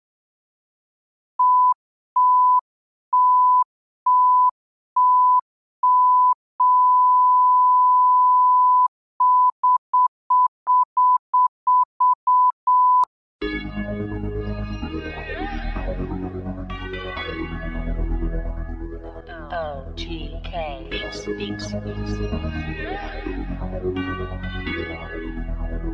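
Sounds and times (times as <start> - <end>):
music: 13.4 - 25.9.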